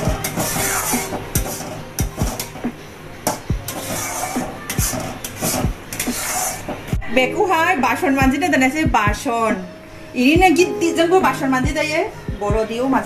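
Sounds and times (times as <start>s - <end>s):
metal spatula scraping a pan: 0.0s - 2.6s, 3.2s - 7.0s.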